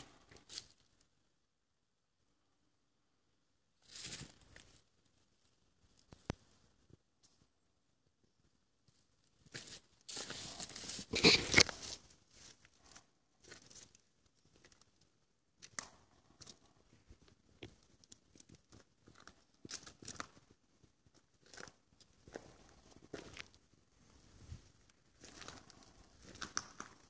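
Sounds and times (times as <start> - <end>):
scraping on gravel: 9.6 - 12.1, 25.2 - 27.0
footsteps crunching on gravel: 25.2 - 27.0.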